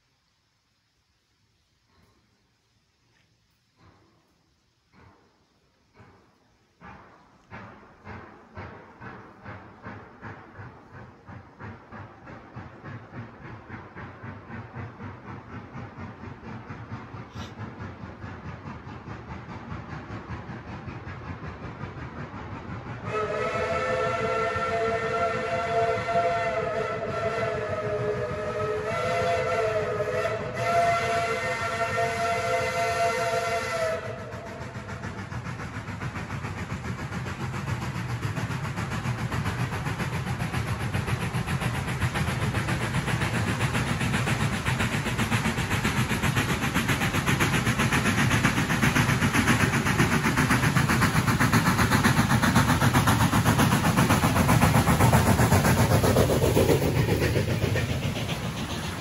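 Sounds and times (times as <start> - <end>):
train rushing noise: 0.0 - 59.0
steam locomotive whistle: 22.9 - 35.2.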